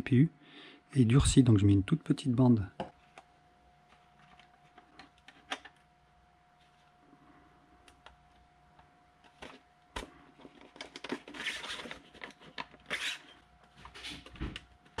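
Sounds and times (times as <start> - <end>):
plastic parts rubbing: 10.3 - 14.3.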